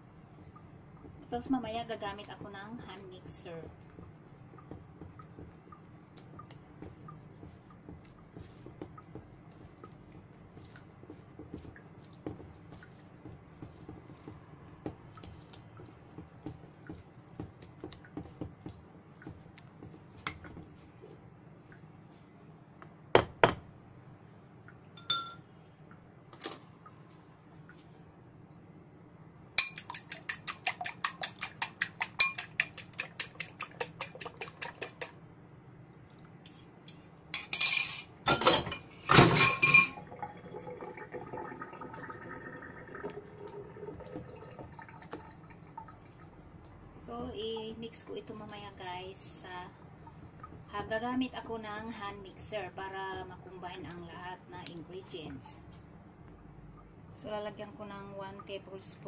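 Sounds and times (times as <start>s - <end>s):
utensil stirring batter in metal bowl: 29.6s - 35.2s.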